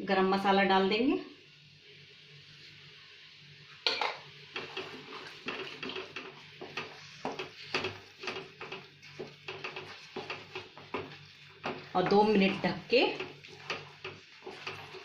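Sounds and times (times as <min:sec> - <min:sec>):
wooden spatula scraping a pan: 0:04.5 - 0:15.0.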